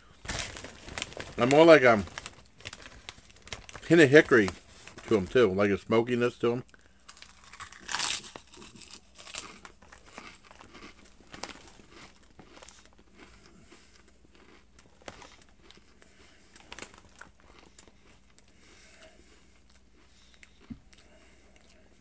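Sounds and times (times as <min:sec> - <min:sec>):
chip bag crinkling: 0:00.1 - 0:05.4, 0:06.7 - 0:13.3, 0:14.3 - 0:15.8, 0:16.5 - 0:18.4
chips being chewed: 0:06.7 - 0:21.9.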